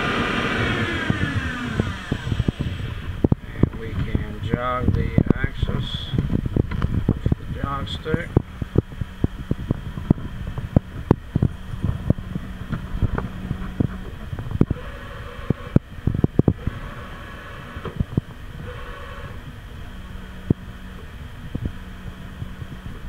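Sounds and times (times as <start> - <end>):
low machine hum: 0.0 - 23.0
machine axis drives whirring: 0.0 - 23.0
sharp clicks and knocks: 6.1 - 7.4.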